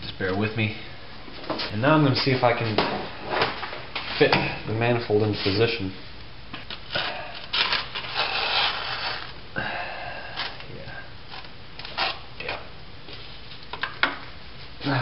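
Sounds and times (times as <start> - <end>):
metal scraping and rubbing: 7.5 - 9.3.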